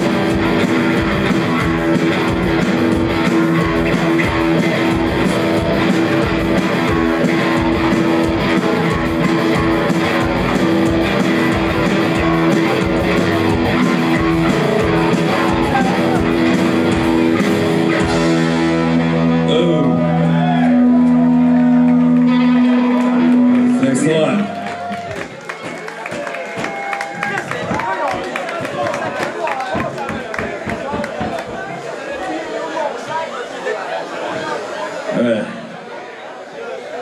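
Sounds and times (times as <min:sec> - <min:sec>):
punk rock band playing: 0:00.0 - 0:25.8.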